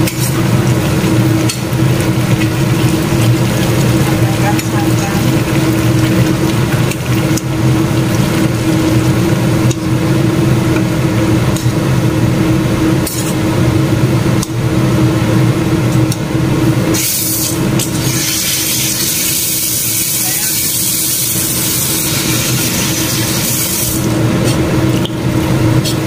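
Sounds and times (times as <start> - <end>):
liquid pouring into pot: 0.1 - 9.1.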